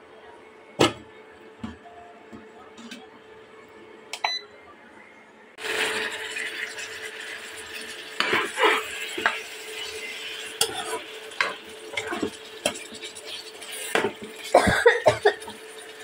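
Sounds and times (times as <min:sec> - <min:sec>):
curry sizzling in a pan: 0:05.6 - 0:16.0
spatula scraping and knocking pan: 0:08.2 - 0:09.4.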